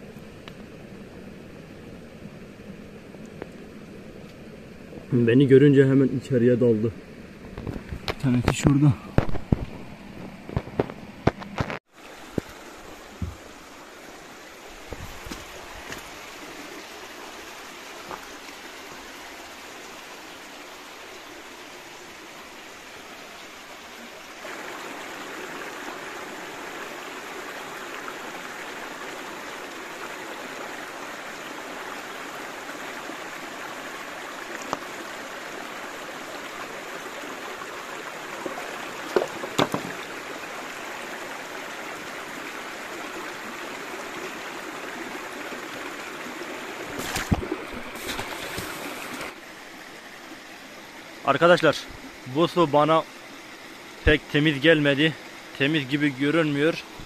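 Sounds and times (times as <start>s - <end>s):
stream water rushing: 0.0s - 57.0s
sharp knocks: 39.1s - 40.0s.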